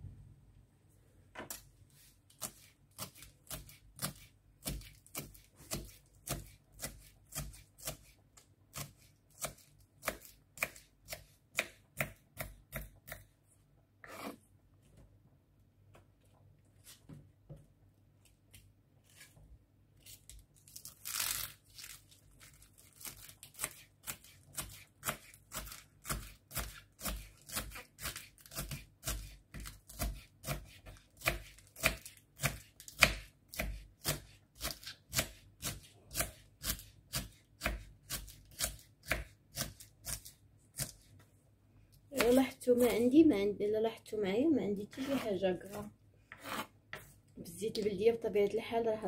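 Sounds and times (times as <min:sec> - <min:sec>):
knife strokes on wooden board: 0:14.0 - 0:14.4, 0:44.9 - 0:45.4, 0:46.3 - 0:47.1.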